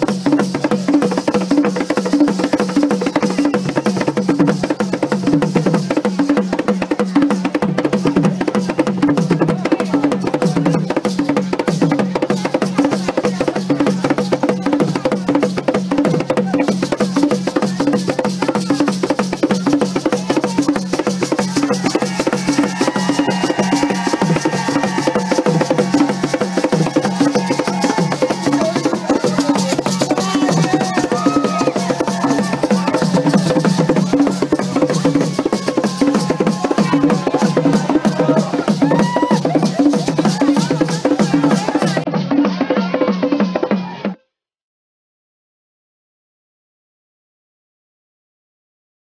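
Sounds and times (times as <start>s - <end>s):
hand drums playing: 0.0s - 43.7s
voices singing: 20.4s - 42.0s.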